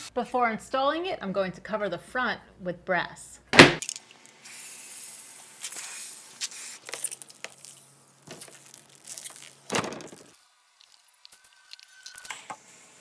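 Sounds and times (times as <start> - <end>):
aerosol can spraying: 4.4 - 7.2.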